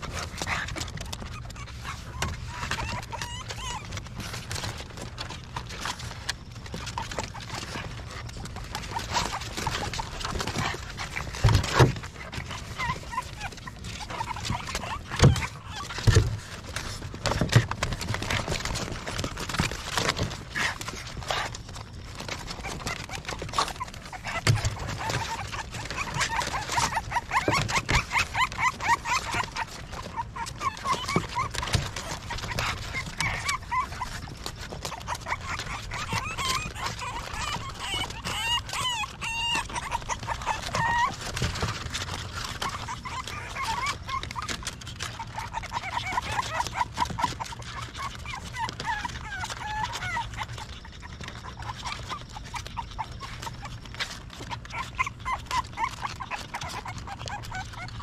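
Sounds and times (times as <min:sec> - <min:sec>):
puppies whimpering and squeaking: 0:00.0 - 0:58.0.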